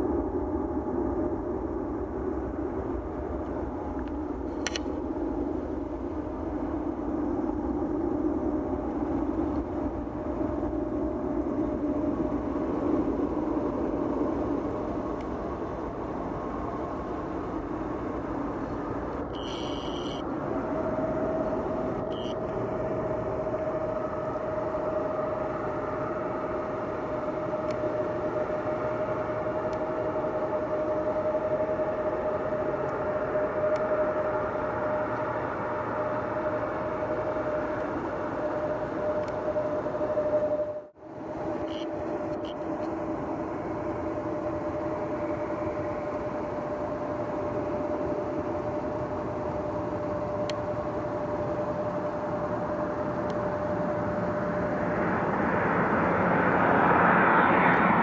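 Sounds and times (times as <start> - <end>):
jet engines rumbling and whining: 0.0 - 58.0
short high-pitched beeps: 19.4 - 20.2, 22.1 - 22.4.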